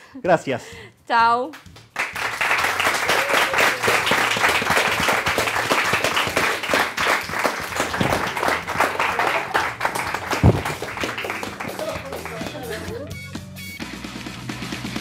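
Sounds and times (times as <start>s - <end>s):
audience applauding: 2.0s - 13.2s.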